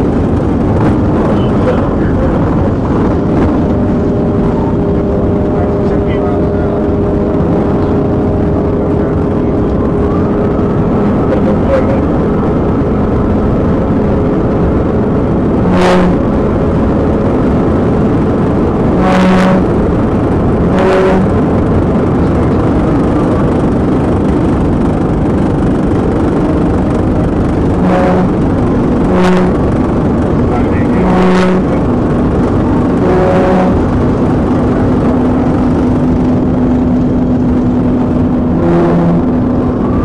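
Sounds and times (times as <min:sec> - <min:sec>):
car engine at high speed: 0:00.0 - 0:40.0
tyre and wind noise: 0:00.0 - 0:40.0
short pitched blips: 0:15.5 - 0:17.0, 0:18.8 - 0:23.4, 0:26.4 - 0:40.0.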